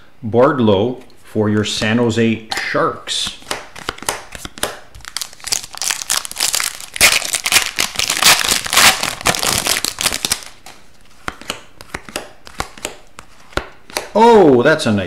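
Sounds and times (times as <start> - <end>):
cards flicked by hand: 2.5 - 5.1, 10.1 - 14.2
foil pack tearing and crinkling: 5.0 - 10.6.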